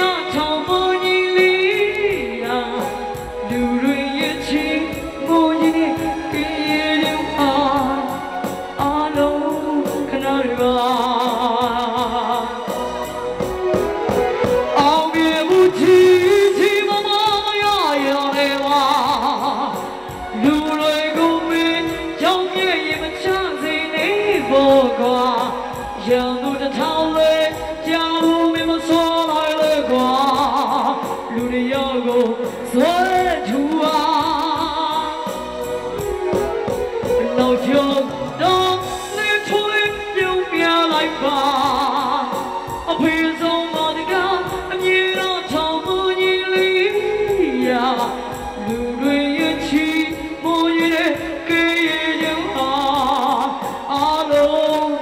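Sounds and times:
backing music: 0.0 - 55.0
woman singing into a microphone: 0.0 - 55.0.

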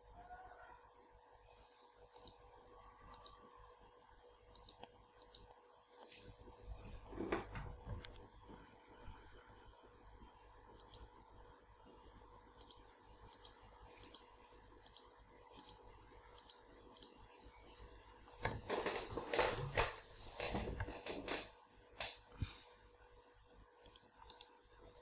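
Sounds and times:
computer mouse clicking: 2.1 - 3.5, 4.5 - 5.6, 10.7 - 11.1, 12.5 - 17.3, 23.8 - 24.6.

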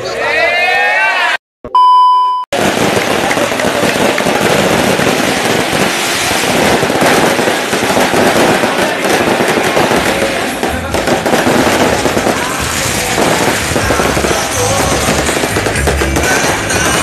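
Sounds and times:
firecrackers crackling: 2.6 - 17.0
music with deep bass beat: 12.0 - 17.0.

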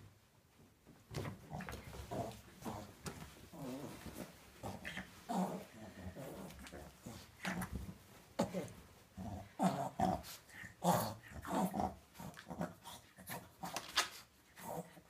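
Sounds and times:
towel rustling on tile floor: 0.5 - 9.1
dog growling: 1.4 - 13.8.

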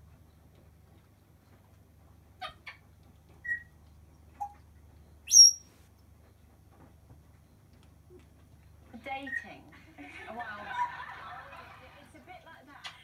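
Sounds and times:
parrot whistles: 5.3 - 5.7.

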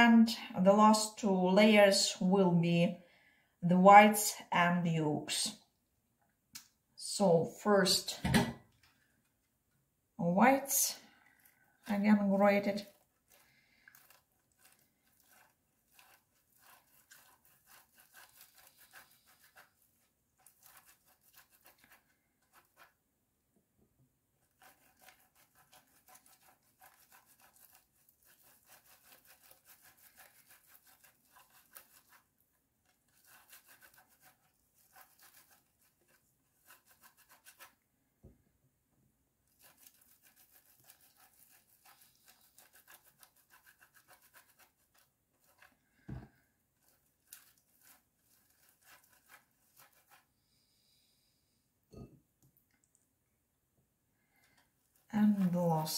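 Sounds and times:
egg grated on metal grater: 11.8 - 23.0, 24.4 - 37.8, 39.5 - 45.8, 46.8 - 50.3, 55.0 - 55.9.

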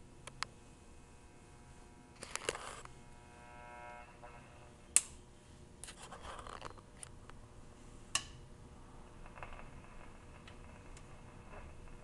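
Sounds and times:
scratchy rustle with ticks: 2.2 - 2.9, 5.9 - 6.8.

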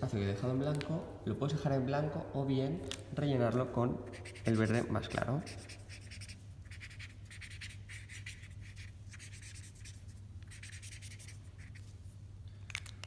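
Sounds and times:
marker stroking on paper: 4.0 - 12.1.

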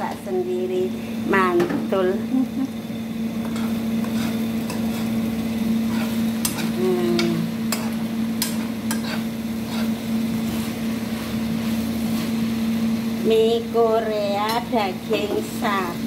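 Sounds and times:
steady low hum: 0.0 - 16.0
metal spoon scraping frying pan: 3.4 - 5.2, 5.8 - 10.0.

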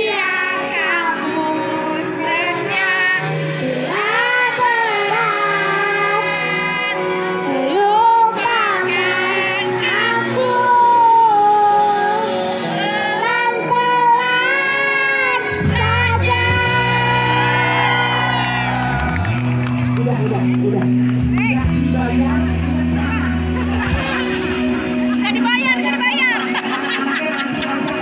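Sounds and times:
girl singing into a microphone: 0.0 - 17.5
musical accompaniment: 0.0 - 28.0
deep bass notes: 15.6 - 26.0.

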